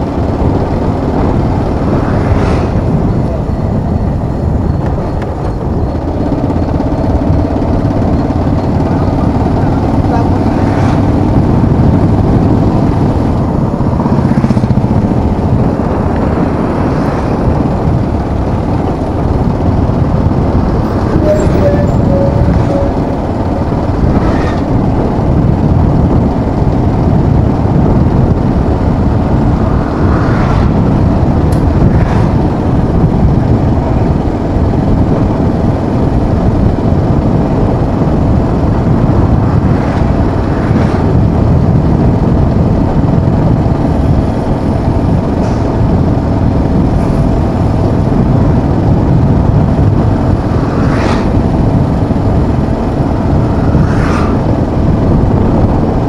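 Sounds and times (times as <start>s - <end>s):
motorcycle engine roar: 0.0s - 56.0s
road noise: 0.0s - 56.0s
wind rushing over microphone: 0.0s - 56.0s.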